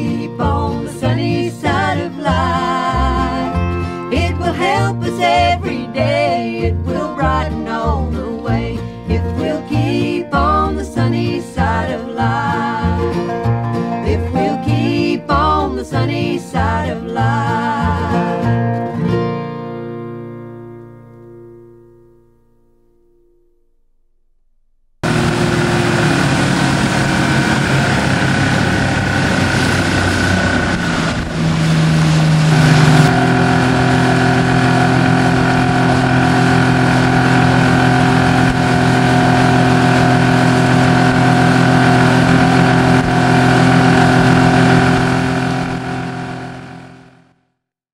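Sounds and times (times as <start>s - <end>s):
boat motor running: 0.0s - 18.6s, 25.0s - 47.4s
rush of wind and water: 25.2s - 38.0s.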